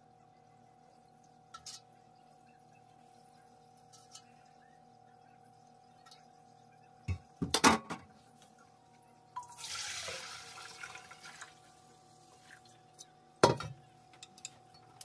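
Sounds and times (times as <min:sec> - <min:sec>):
water pouring into a pot: 0:09.4 - 0:12.9.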